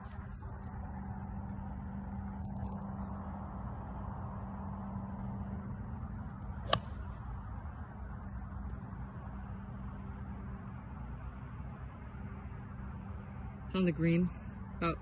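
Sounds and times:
low background hum: 0.0 - 15.0
golf club striking ball: 6.6 - 7.3.

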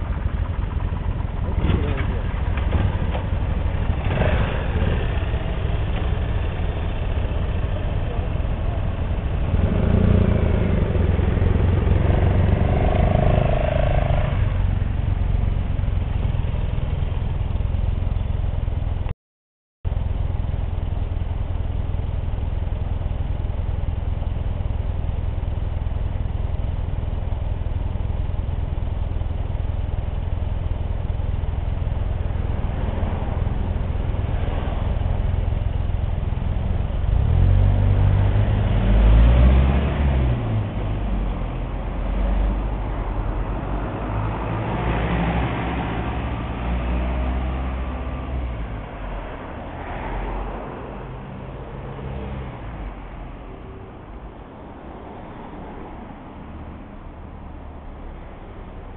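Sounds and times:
engines revving: 0.0 - 14.9, 32.0 - 56.5
motorcycle engines running low: 0.0 - 19.1, 19.9 - 38.8.

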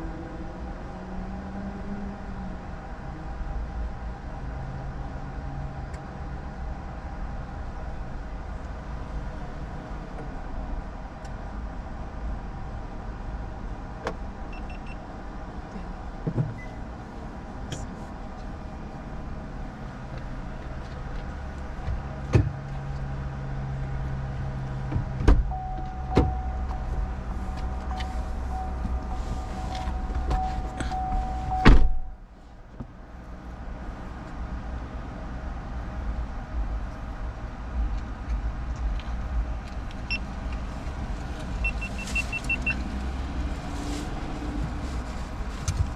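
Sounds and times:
car low hum: 0.0 - 45.9
loud thump: 31.6 - 32.1.

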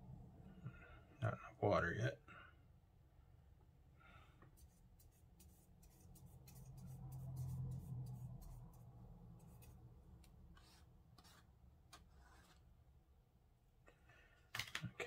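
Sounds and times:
paintbrush scratching in paint tray: 4.5 - 12.8.

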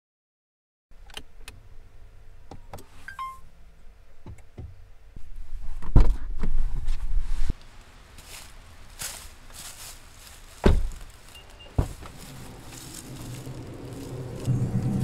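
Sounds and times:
short electronic beep: 3.1 - 3.4
car door opening with thump: 10.6 - 11.0, 11.7 - 12.2
low rumble: 11.9 - 15.0.

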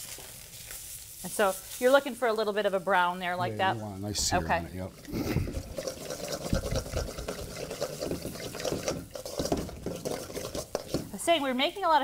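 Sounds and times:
crackling spits: 4.8 - 11.2
fish searing in a hot pan: 4.8 - 12.0.

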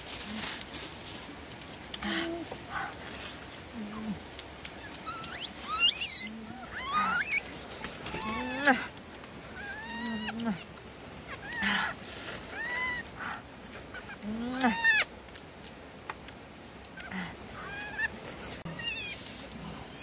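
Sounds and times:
baby monkey whimpering coos: 4.8 - 10.6, 11.3 - 15.1, 17.0 - 20.0.

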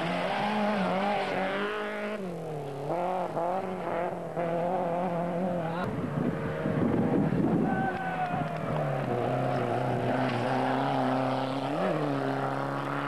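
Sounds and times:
another car engine: 0.0 - 13.0
rally car engine revving: 0.0 - 13.0.

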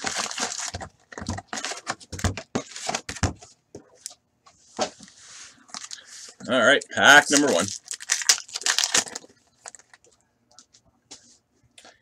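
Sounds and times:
card wrappers crinkling and tapping: 0.0 - 4.2, 5.7 - 6.1, 7.1 - 10.7.

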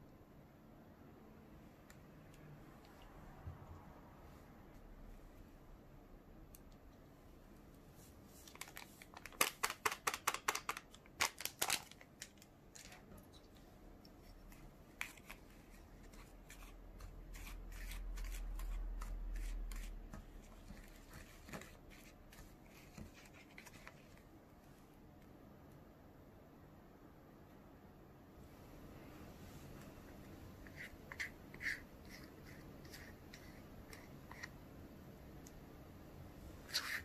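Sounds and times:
foil packet crinkling: 8.4 - 13.0.

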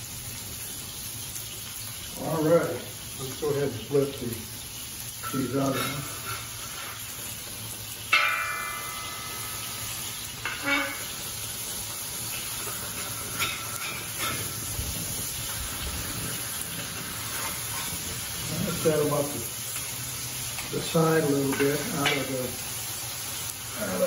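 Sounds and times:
burger patties sizzling: 0.0 - 24.0
spatula clanging on pan: 5.2 - 7.0, 8.1 - 14.7, 21.2 - 22.6
metal spatula scraping a pan: 5.2 - 7.2, 8.1 - 14.8, 16.3 - 18.9.

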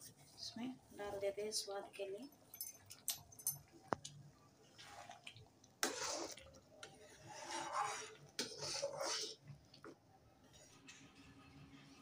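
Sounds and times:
ladle stirring thick lentils: 4.4 - 12.0.

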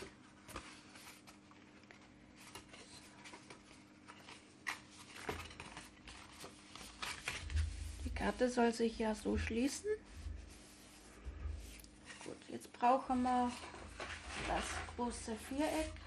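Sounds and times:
paper rustling and crinkling: 0.0 - 16.0.

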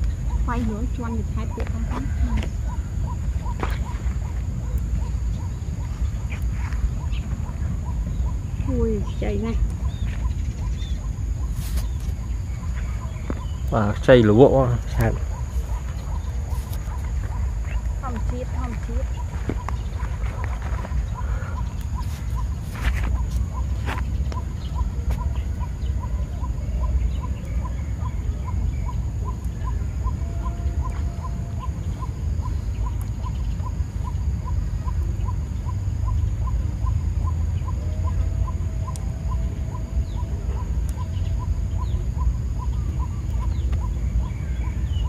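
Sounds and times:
low rumble: 0.0 - 45.0
thin high hiss: 11.4 - 12.3.

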